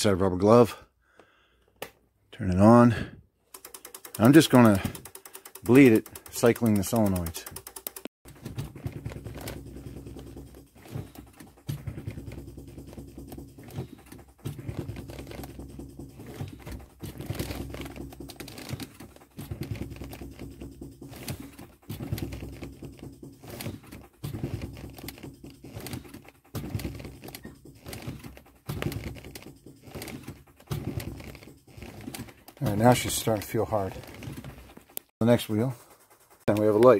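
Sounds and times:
solenoids buzzing and clicking: 3.4 - 8.5.

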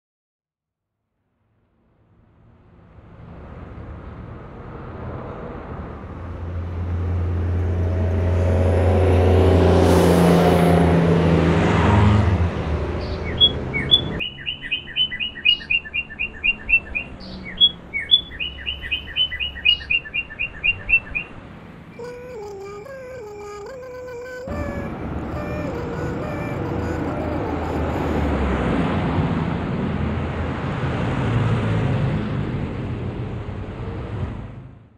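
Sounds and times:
street traffic rush: 2.4 - 34.9
small bird chirping: 13.0 - 21.3, 22.0 - 28.2.

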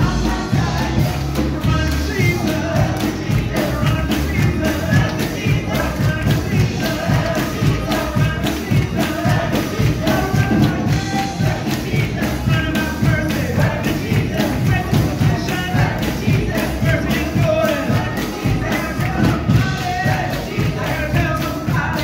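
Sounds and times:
gospel singing voices: 0.0 - 22.0.

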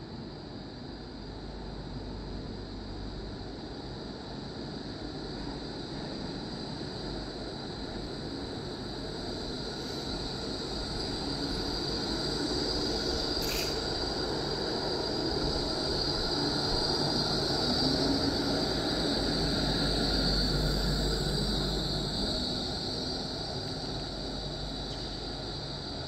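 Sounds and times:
steady high whine: 0.0 - 26.0
tram wheels rumbling on rails: 3.3 - 26.0
short sharp chirp: 13.4 - 13.8.

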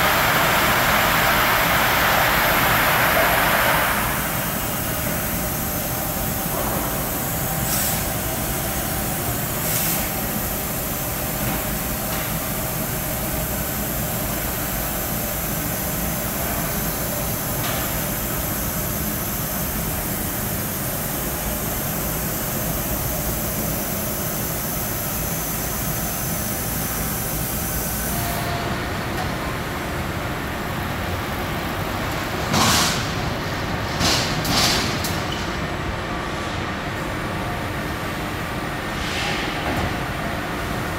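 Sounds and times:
laser cutter hissing: 0.0 - 28.6
machine hum: 0.0 - 34.6.

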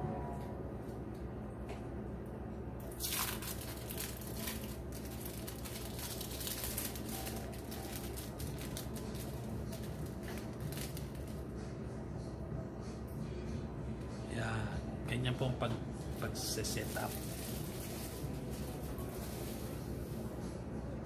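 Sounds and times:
plastic wrappers crinkling: 2.9 - 11.4, 16.6 - 19.7.

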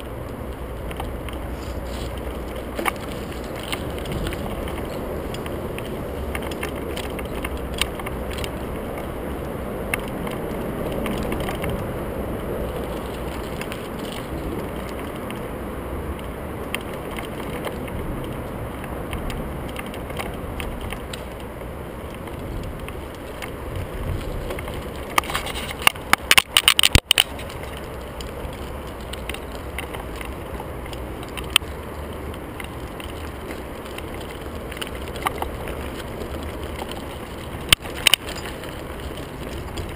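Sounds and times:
bike tyres rumbling on gravel: 0.0 - 39.9
sharp knocks and rattles: 0.8 - 9.1.

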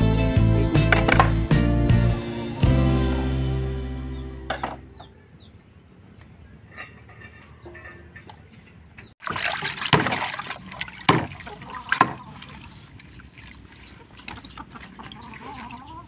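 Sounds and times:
hand splashing greens in water: 9.2 - 15.8.

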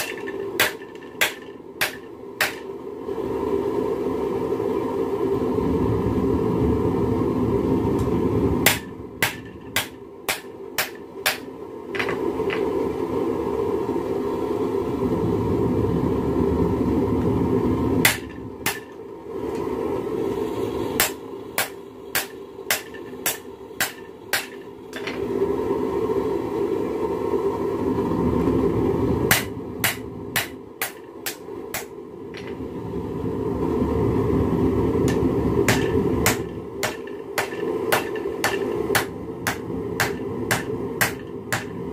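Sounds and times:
hammer blows on anvil: 35.1 - 41.8.

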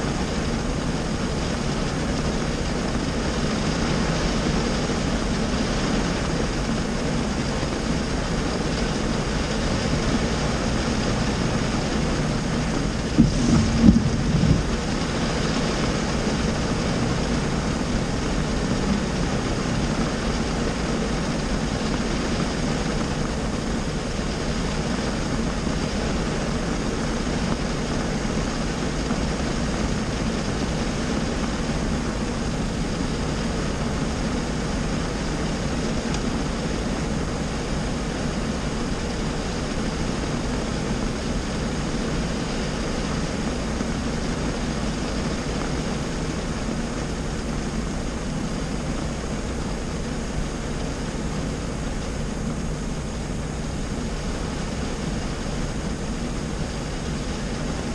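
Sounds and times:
heavy rain on car roof: 0.0 - 57.9
low knock: 13.2 - 14.6.

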